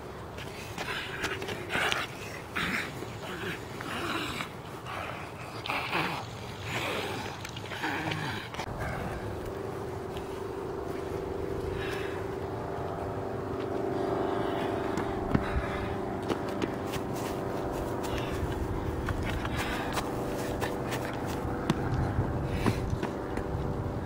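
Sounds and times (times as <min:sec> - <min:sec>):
steady engine hum: 0:00.0 - 0:24.0
snarling gnawing vocal noise: 0:00.8 - 0:09.3.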